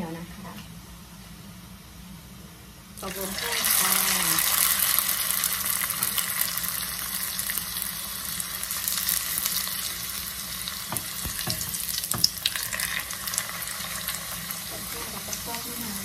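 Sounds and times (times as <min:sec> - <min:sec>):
food sizzling in hot oil: 0:03.0 - 0:16.0
wooden spatula knocking on pot: 0:10.9 - 0:12.3.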